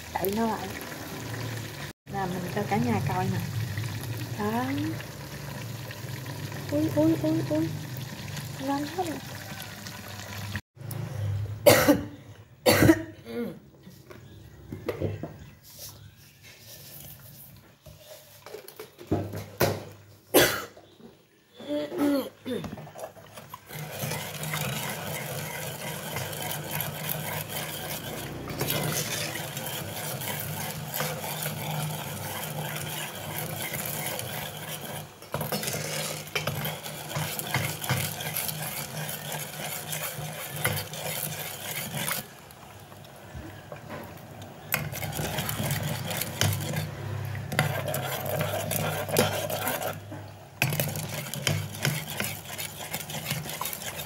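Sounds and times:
metal ladle scraping a pot: 22.9 - 42.4, 44.6 - 54.0.

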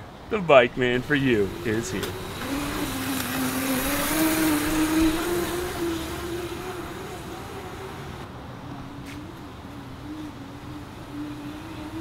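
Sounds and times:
electric motor whining: 0.8 - 8.3.

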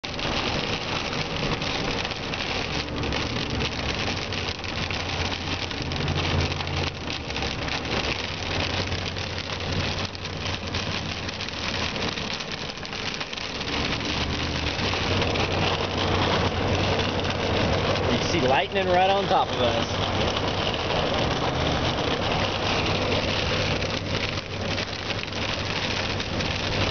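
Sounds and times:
car driving rumble: 0.0 - 26.9
rain pattering on car: 0.0 - 26.9.

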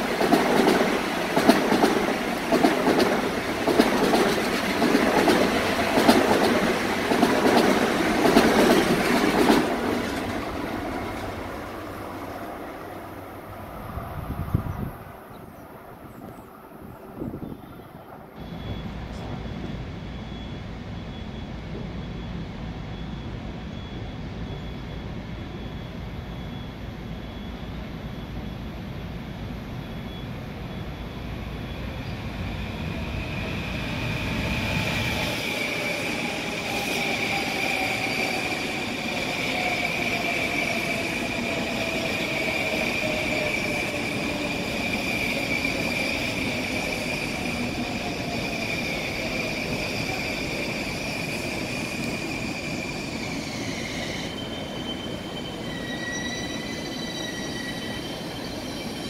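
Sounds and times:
train wheel and brake squeal: 17.2 - 59.0.

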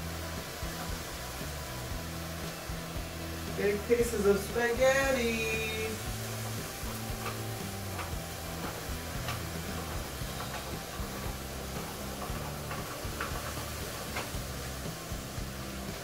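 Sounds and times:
background music with bass: 0.0 - 16.0
crank clicking: 3.6 - 16.0.

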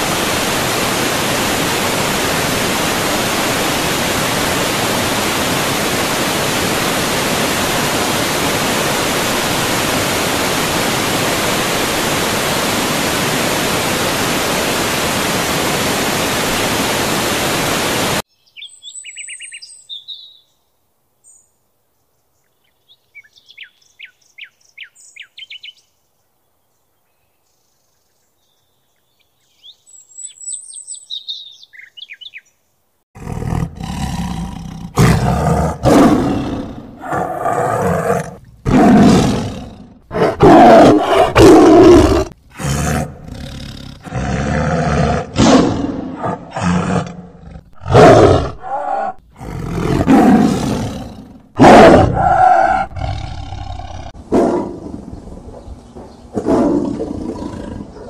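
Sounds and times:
waterfall rushing: 0.0 - 18.2
birds chirping and trilling: 18.3 - 32.9, 52.1 - 58.0.

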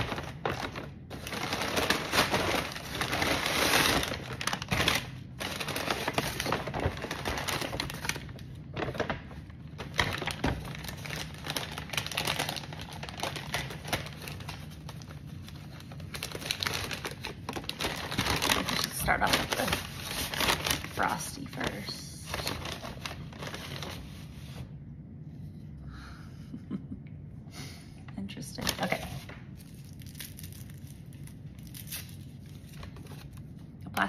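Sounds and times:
paper bags rustling and crinkling: 0.0 - 24.8, 28.6 - 33.6.

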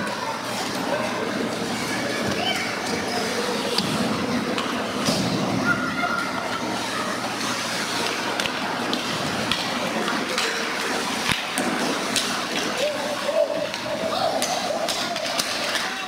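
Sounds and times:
hockey sticks and puck clacking: 8.0 - 12.9, 13.6 - 16.0.

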